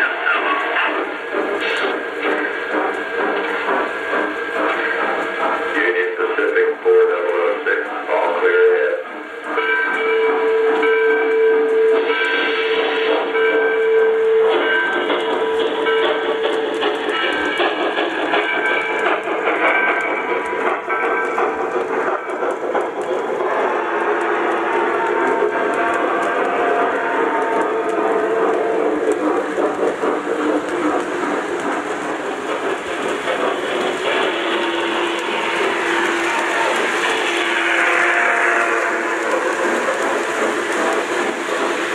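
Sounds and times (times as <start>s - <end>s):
steam hiss: 0.0s - 41.9s
model train steam whistle: 5.8s - 17.8s, 23.4s - 29.8s, 34.0s - 41.9s
model train wheels clattering: 14.6s - 41.9s.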